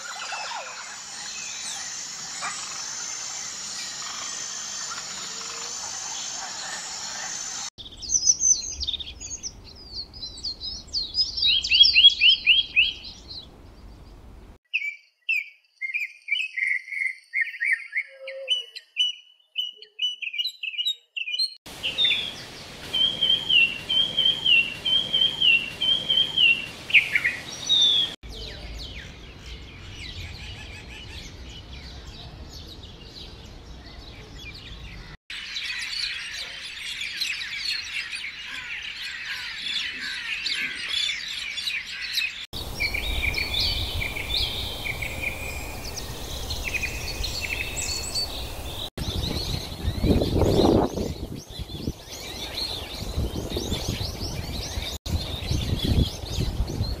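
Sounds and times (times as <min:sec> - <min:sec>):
dense bird chorus: 0:21.7 - 0:57.0
scattered bird chirps: 0:35.0 - 0:53.9
whistled bird phrase with falling glide: 0:42.7 - 0:57.0.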